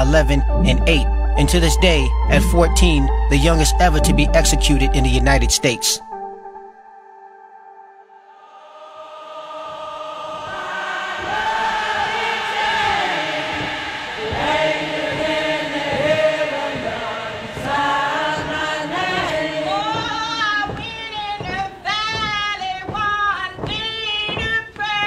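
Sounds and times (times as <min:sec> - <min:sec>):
choir singing long notes: 0:00.0 - 0:05.0, 0:06.7 - 0:21.6.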